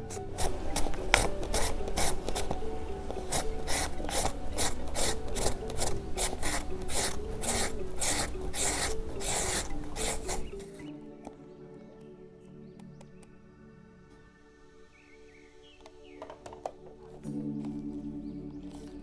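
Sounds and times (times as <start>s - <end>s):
papaya rasping on a grater: 0.1s - 2.6s, 3.2s - 10.5s.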